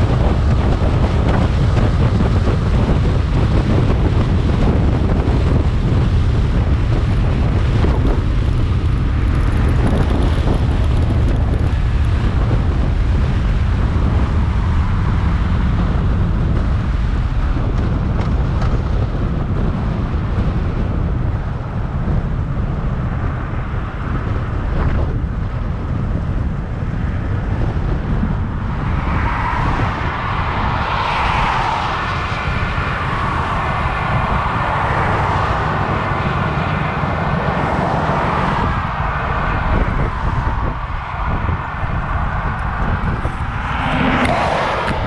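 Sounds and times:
motorcycle engine running: 0.0 - 19.3
wind rush: 0.0 - 45.0.

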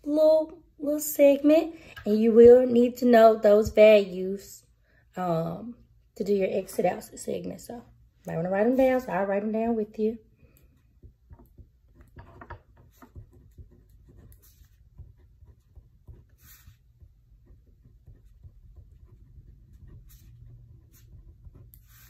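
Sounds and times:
pen scratching on paper: 10.7 - 22.0.

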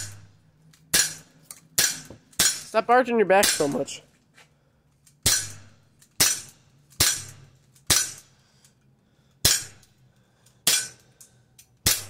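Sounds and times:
bb pistol shots: 5.2 - 8.3.

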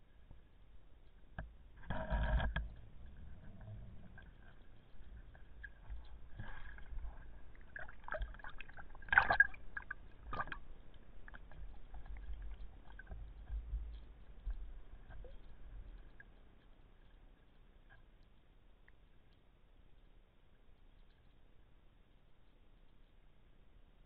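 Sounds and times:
low underwater rumble: 0.0 - 18.3
faint clicks and crackle: 0.0 - 24.0.

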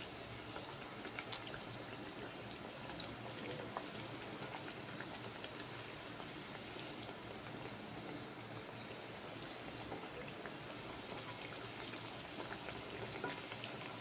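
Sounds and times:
oil sizzling and crackling: 0.0 - 14.0.

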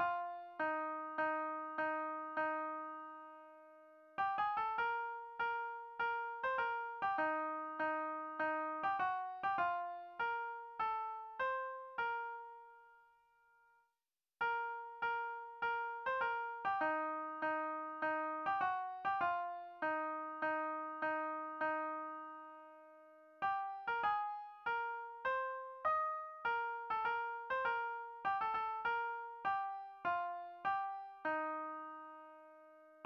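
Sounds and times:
midi piano hymn melody: 0.0 - 12.9, 14.4 - 33.0.

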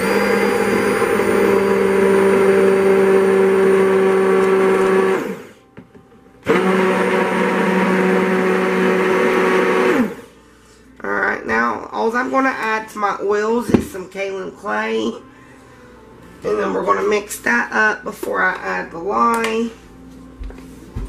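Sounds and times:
stick blender whirring: 0.0 - 5.6, 6.4 - 10.3.

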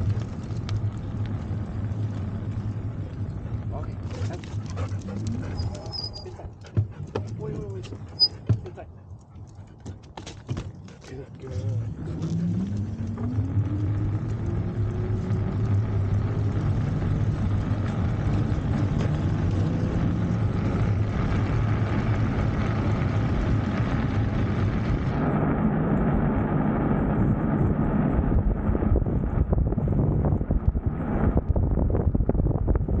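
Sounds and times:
wind noise: 0.0 - 9.0, 11.5 - 33.0
tyre noise: 0.0 - 25.2
electric motor whine: 11.8 - 28.2.

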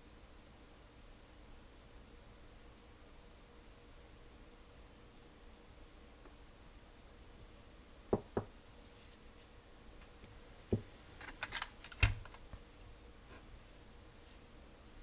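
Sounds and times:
objects knocking on a bench: 8.1 - 8.5.

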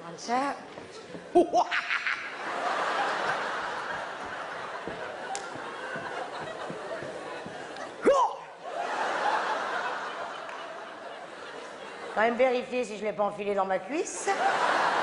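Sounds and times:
audience laughing: 1.6 - 12.3, 14.2 - 15.0.

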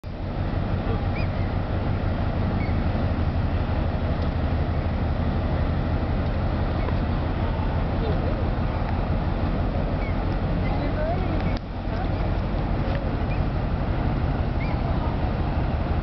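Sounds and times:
low ship engine rumble: 0.0 - 16.0.

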